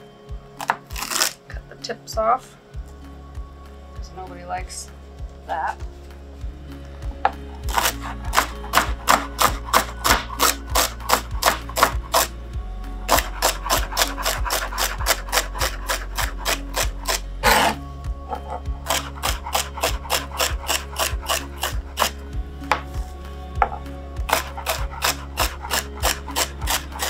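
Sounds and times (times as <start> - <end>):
knife chopping celery: 7.6 - 12.3, 13.1 - 17.8, 18.8 - 22.9, 24.3 - 27.0.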